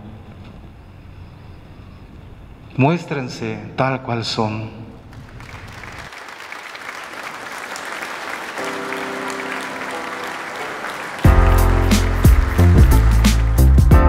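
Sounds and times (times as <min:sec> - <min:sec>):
crowd applauding: 0:05.1 - 0:14.0
loud music with deep bass: 0:11.2 - 0:14.0.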